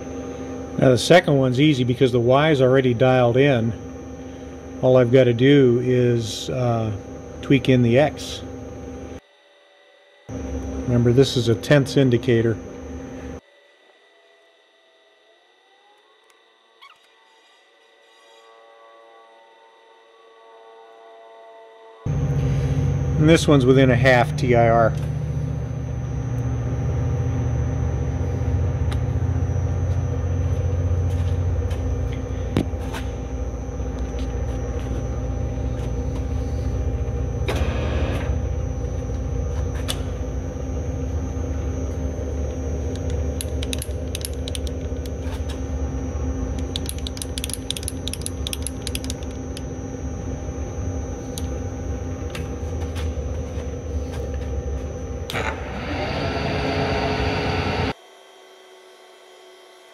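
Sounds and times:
milling machine drone: 0.0s - 58.0s
sharp cutting ticks: 43.0s - 45.2s, 46.6s - 49.7s.

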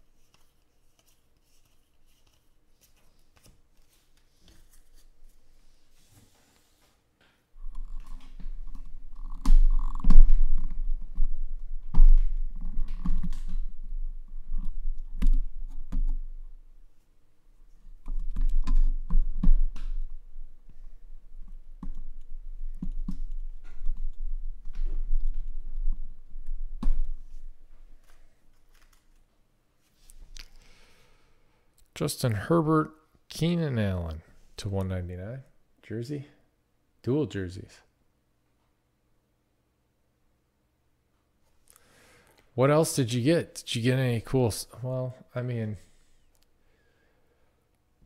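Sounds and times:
rapid irregular clicks and taps: 7.6s - 16.5s, 18.0s - 20.8s, 21.4s - 27.2s.

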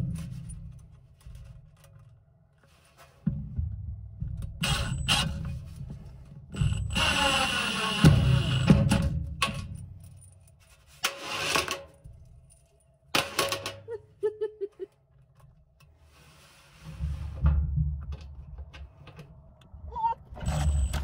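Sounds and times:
impact driver driving screws: 6.7s - 8.9s.

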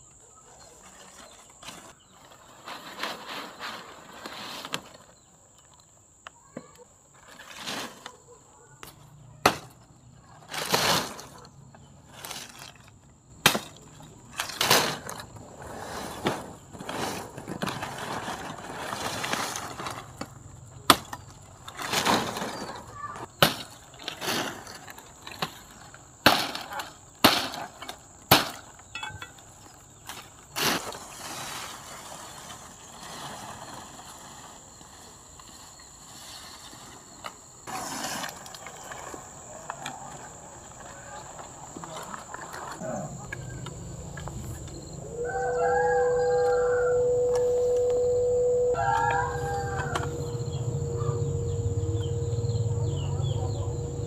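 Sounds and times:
sharp knocks and cracks: 13.4s - 15.2s, 23.4s - 23.8s, 26.2s - 29.4s.

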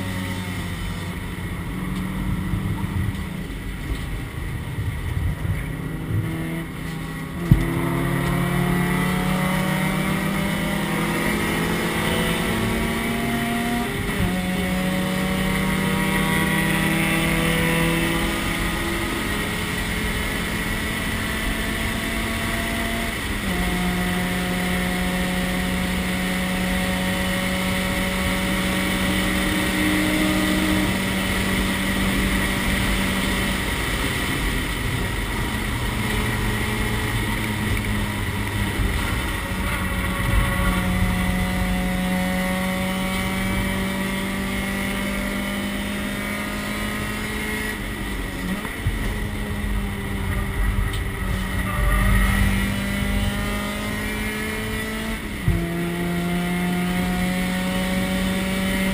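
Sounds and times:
wind noise: 0.0s - 24.5s
race car engine at high revs: 0.0s - 58.9s
road noise: 0.0s - 58.9s.

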